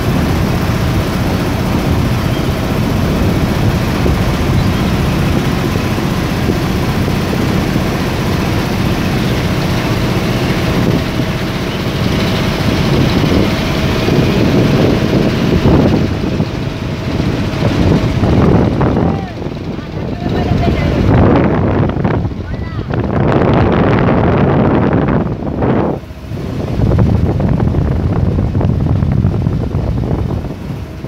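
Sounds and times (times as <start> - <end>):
boat motor droning: 0.0 - 31.0
wind and water rushing: 0.0 - 31.0.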